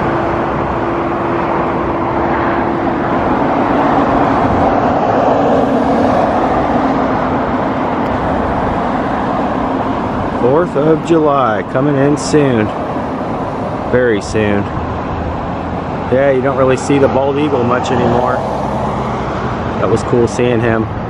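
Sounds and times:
cars passing on road: 0:00.0 - 0:21.0.

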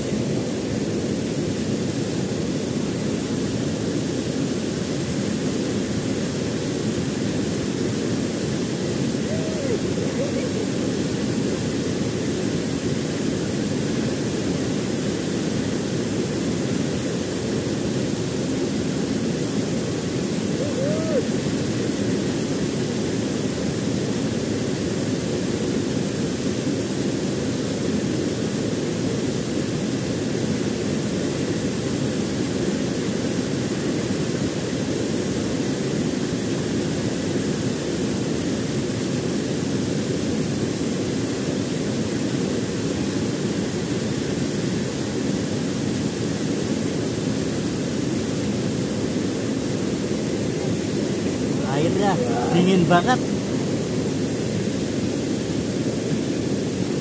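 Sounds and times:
waterfall rushing: 0:08.2 - 0:12.3, 0:18.4 - 0:22.9, 0:48.7 - 0:55.1.

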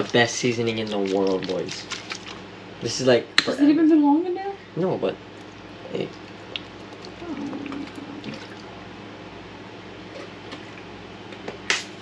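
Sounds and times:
liquid dripping and slopping: 0:00.0 - 0:02.4, 0:05.3 - 0:08.8.

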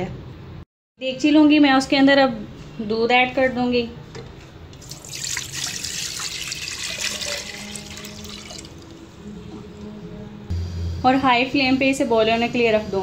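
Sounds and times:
milk pouring into metal pot: 0:04.8 - 0:08.9.

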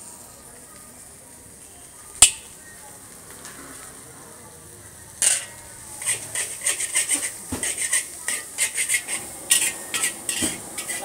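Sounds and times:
faint sizzle: 0:00.0 - 0:11.0
metal spatulas scraping a wok: 0:05.2 - 0:11.0.

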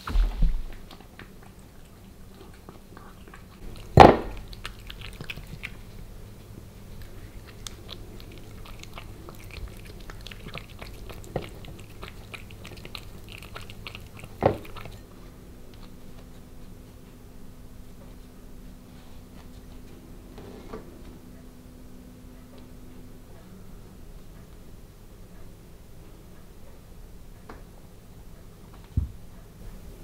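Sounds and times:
cat chewing food: 0:00.7 - 0:16.8.

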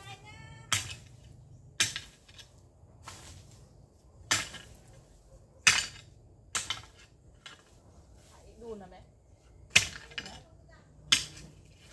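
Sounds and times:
hoe chopping into dry soil: 0:00.7 - 0:03.5, 0:04.2 - 0:04.9, 0:11.0 - 0:11.9.

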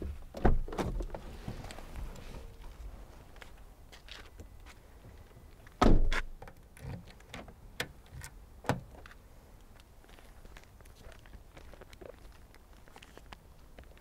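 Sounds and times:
car door shutting thud: 0:05.8 - 0:06.3.

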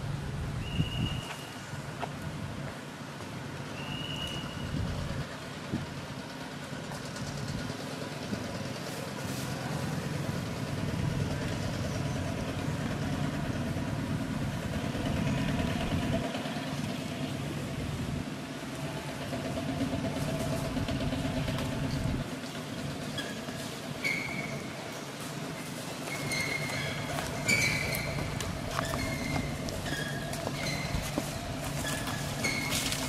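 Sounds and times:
motor engine idling: 0:04.6 - 0:23.9, 0:26.5 - 0:33.0.

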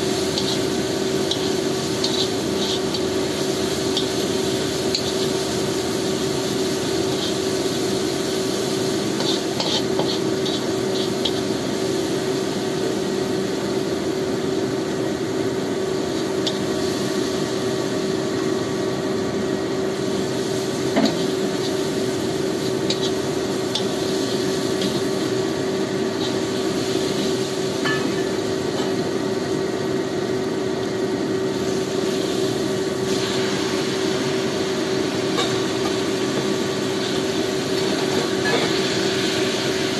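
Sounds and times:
paste sizzling in a wok: 0:00.0 - 0:39.9
steady hum: 0:00.0 - 0:39.9
metal spatula scraping: 0:09.2 - 0:11.4.

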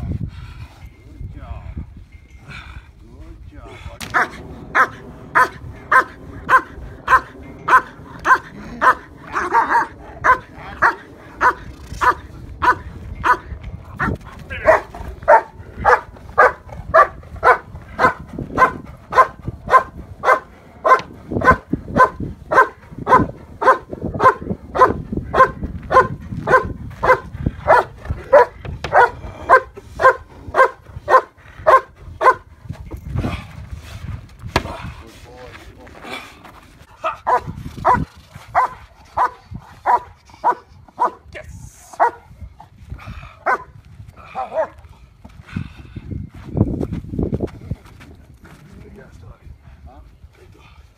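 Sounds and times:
dog barking: 0:04.2 - 0:13.4, 0:14.6 - 0:32.4, 0:37.2 - 0:41.2, 0:42.0 - 0:42.2, 0:43.4 - 0:43.7.

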